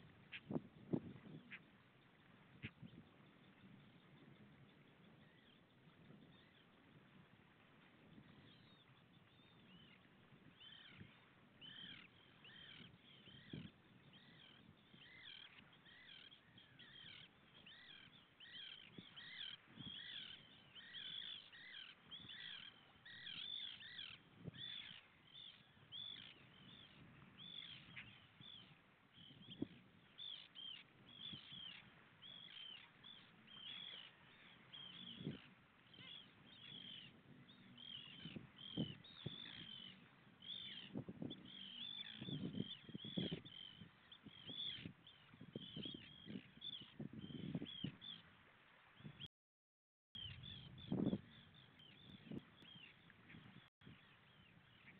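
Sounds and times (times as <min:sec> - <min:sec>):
gulls calling: 0:09.5 - 0:48.2.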